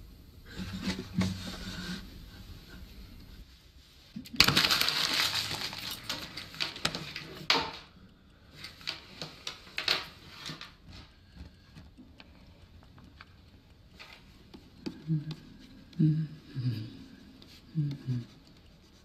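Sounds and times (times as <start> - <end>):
rustling: 0.0 - 19.0.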